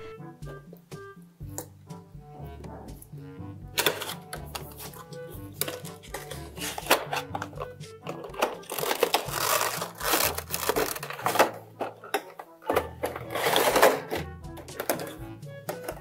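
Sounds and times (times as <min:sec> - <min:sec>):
background music with bass line: 0:00.0 - 0:16.0
plastic packaging rustling and clicking: 0:03.8 - 0:16.0.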